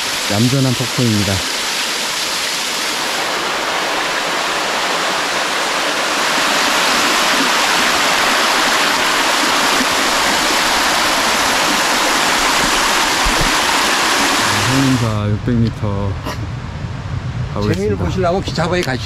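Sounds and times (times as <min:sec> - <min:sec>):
waterfall rushing: 0:00.0 - 0:15.2.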